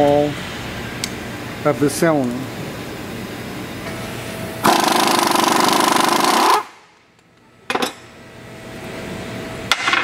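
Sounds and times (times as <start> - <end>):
air impact wrench hammering: 4.6 - 6.8.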